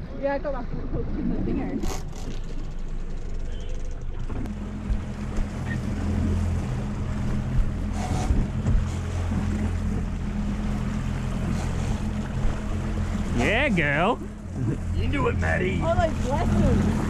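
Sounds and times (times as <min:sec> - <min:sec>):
outboard motor running: 0:00.0 - 0:17.0
water washing along hull: 0:00.0 - 0:17.0
wind on microphone: 0:04.3 - 0:10.1.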